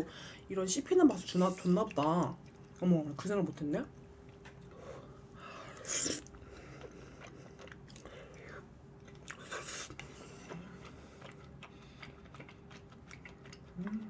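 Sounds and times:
person chewing: 5.6 - 14.0.

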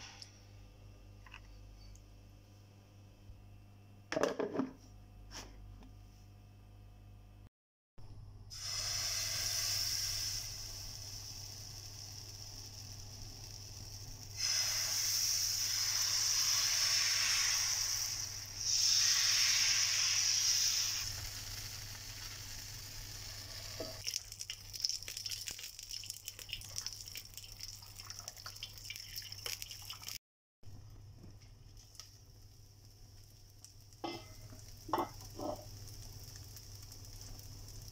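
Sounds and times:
batter sizzling on hot pan: 8.5 - 29.8, 31.7 - 37.9
light crackling: 31.8 - 37.9.

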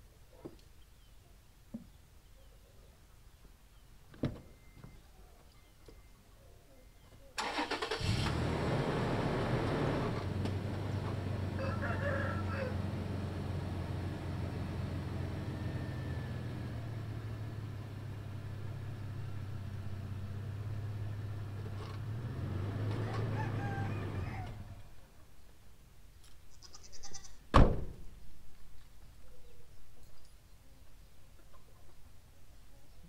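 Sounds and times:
faint farm animal calls: 0.0 - 3.9, 4.5 - 7.6, 11.5 - 13.0, 23.0 - 25.3, 26.4 - 27.5.

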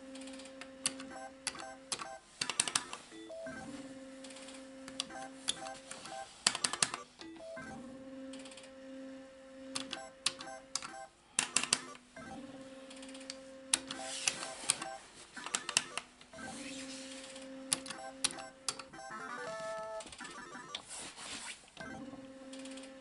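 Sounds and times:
lever and betting clicks: 9.8 - 12.0.

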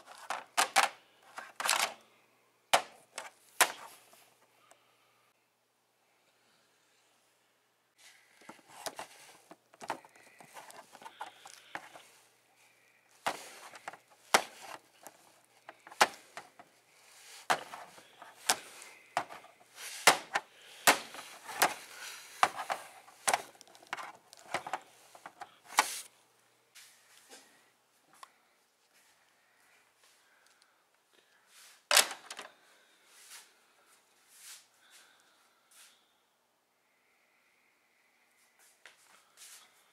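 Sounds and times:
plastic figures knocking together: 2.8 - 3.0, 20.0 - 21.8
soft handling rustle: 8.0 - 26.1.

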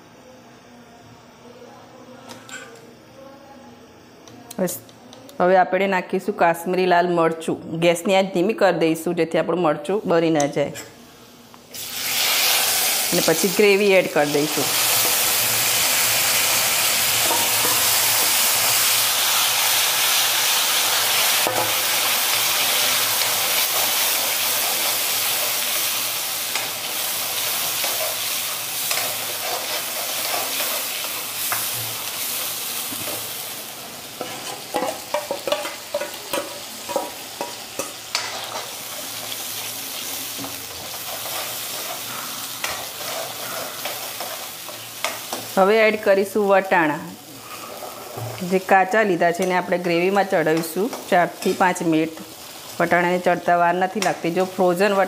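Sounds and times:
gravy sizzling in hot oil: 11.6 - 55.0
spoon scraping a pan: 40.4 - 45.6.

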